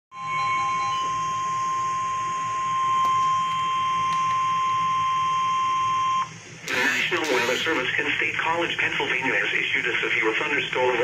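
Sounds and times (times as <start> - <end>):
high steady alert tone: 6.7 - 7.9.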